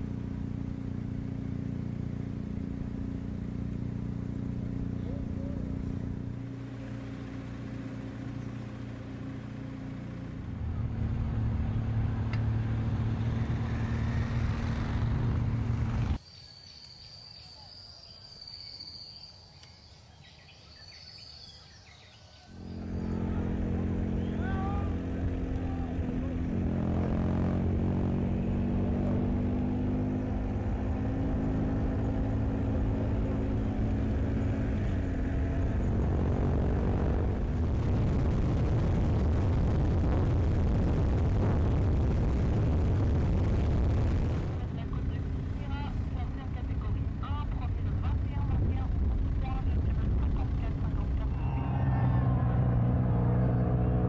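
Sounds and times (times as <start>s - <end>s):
vehicle engine running: 0.0s - 16.2s, 22.5s - 54.0s
road and wind noise: 0.0s - 16.5s, 18.3s - 54.0s
high insect chirr: 16.2s - 21.4s.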